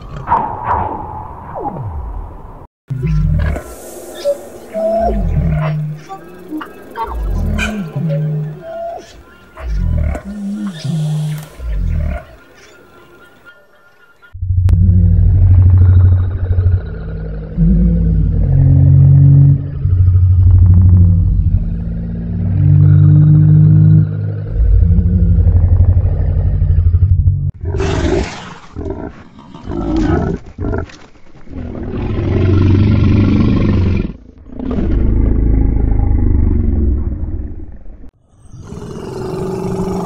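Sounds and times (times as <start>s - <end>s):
animal roars and pig grunts: 3.0s - 9.0s, 9.6s - 12.4s, 14.6s - 40.0s
deep rumbling creature roars: 14.4s - 28.2s, 31.7s - 40.0s.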